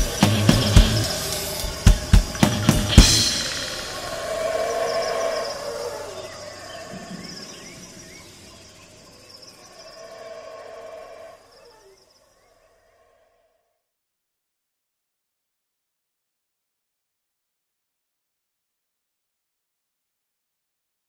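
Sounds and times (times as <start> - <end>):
drum hits: 0.0 - 5.2
band instruments ringing: 0.0 - 6.3
cymbal crash: 0.0 - 6.4.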